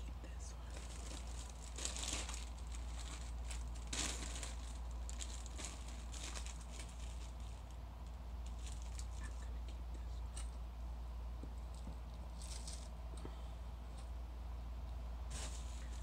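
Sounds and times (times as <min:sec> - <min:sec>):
metal foil crinkling: 0:00.6 - 0:09.5, 0:12.3 - 0:13.0, 0:15.3 - 0:16.0.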